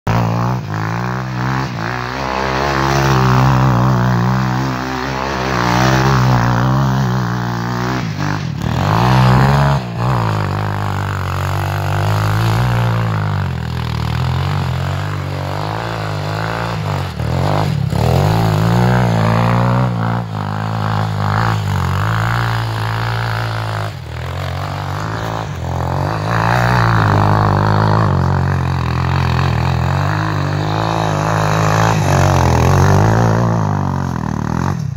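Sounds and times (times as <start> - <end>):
quad bike engine revving: 0.0 - 34.9.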